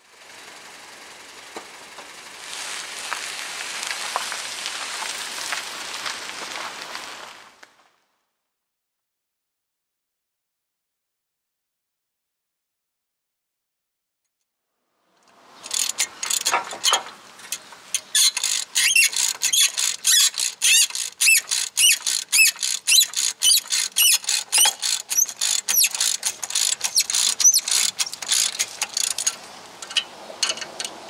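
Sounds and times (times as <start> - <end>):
high metallic squeaks: 15.6 - 30.9
ratchet wrench clicking: 15.6 - 31.0.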